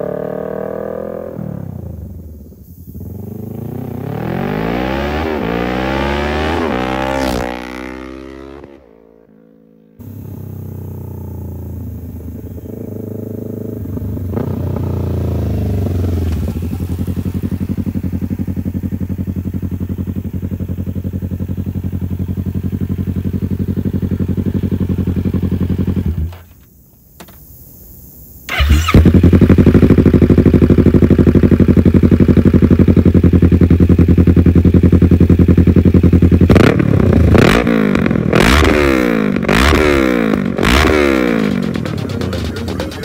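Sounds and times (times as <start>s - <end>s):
motorcycle engine revving: 0.0s - 26.6s, 28.5s - 43.0s
motorcycle engine idling: 8.8s - 27.1s, 27.7s - 38.4s, 39.1s - 43.0s.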